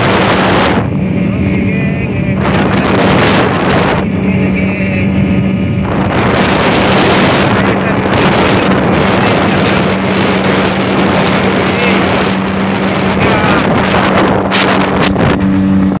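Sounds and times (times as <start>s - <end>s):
speedboat engine humming: 0.0s - 16.0s
wind noise on microphone: 0.0s - 16.0s.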